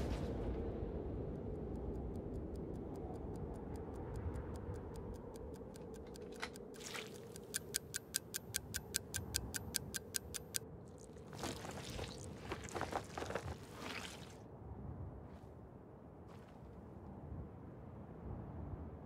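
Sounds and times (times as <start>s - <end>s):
low steady rumble: 0.0s - 6.8s
pocket watch ticking: 1.0s - 11.1s.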